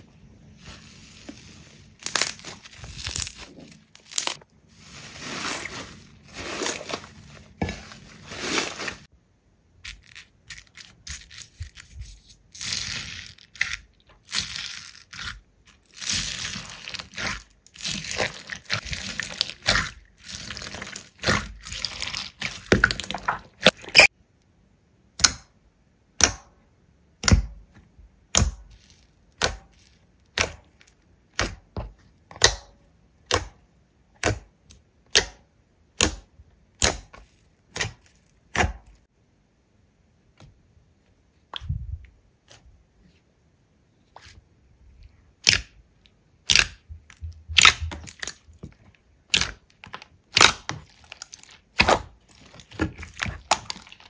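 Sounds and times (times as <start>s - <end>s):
slime crackling and popping: 46.4s - 48.6s, 49.3s - 54.0s.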